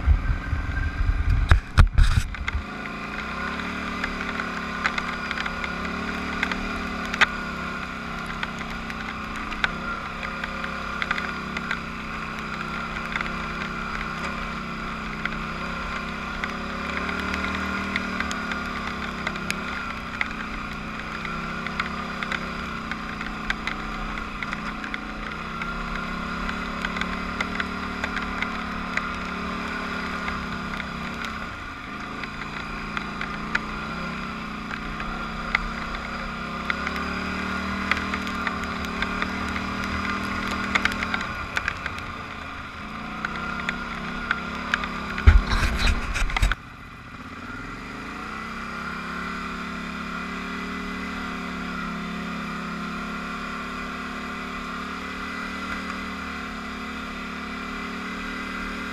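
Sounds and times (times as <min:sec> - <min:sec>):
atv engine revving: 0:00.0 - 0:58.9
clicks and knocks over rough ground: 0:01.2 - 0:03.0, 0:34.7 - 0:46.6.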